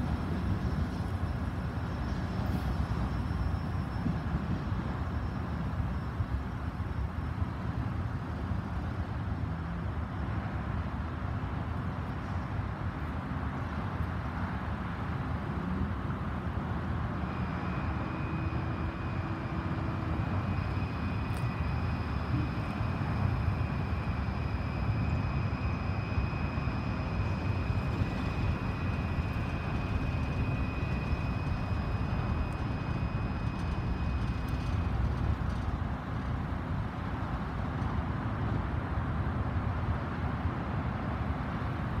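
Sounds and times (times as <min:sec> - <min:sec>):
freight train cars rumbling: 0:00.0 - 0:42.0
high-pitched squeal: 0:17.2 - 0:35.7.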